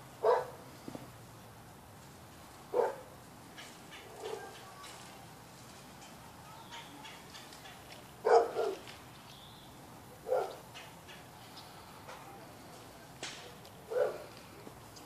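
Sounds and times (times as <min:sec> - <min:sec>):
dog barking: 0:00.2 - 0:00.6, 0:02.7 - 0:03.1, 0:04.1 - 0:04.6, 0:08.2 - 0:08.8, 0:10.2 - 0:10.6, 0:13.9 - 0:14.3.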